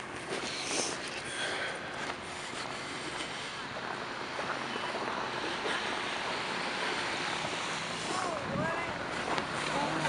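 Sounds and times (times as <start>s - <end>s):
city street noise: 0.0s - 10.0s.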